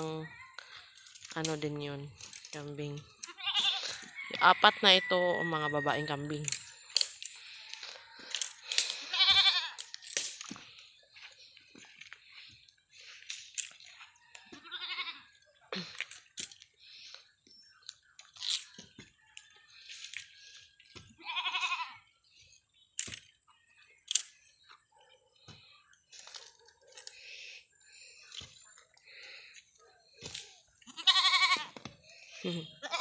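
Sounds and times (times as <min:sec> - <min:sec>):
goats bleating: 0:03.2 - 0:04.0, 0:09.0 - 0:09.8, 0:14.6 - 0:15.4, 0:21.2 - 0:22.0, 0:30.8 - 0:31.8, 0:32.6 - 0:33.0
sharp crunches and snaps: 0:06.4 - 0:10.8, 0:13.1 - 0:14.6, 0:15.8 - 0:17.2, 0:17.8 - 0:20.4, 0:24.0 - 0:24.6, 0:28.3 - 0:32.0.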